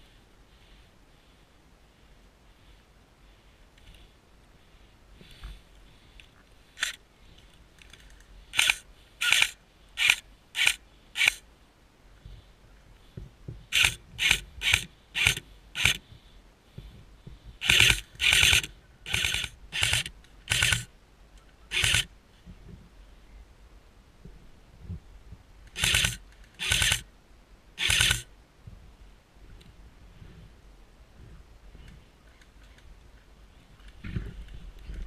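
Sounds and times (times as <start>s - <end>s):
airsoft rifle firing bursts: 13.8s - 16.0s, 17.6s - 20.9s, 21.7s - 22.1s, 25.8s - 27.0s, 27.8s - 28.3s.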